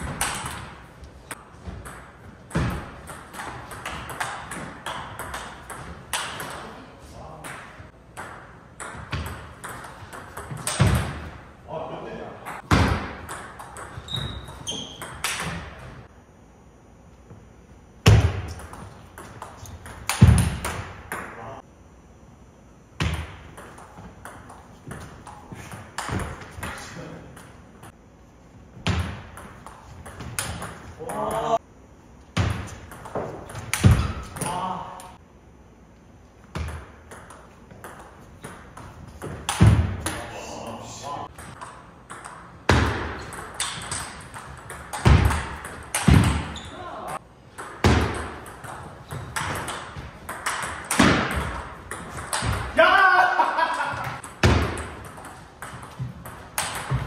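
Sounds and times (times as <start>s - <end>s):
ping pong ball clicking: 54.2s - 57.0s.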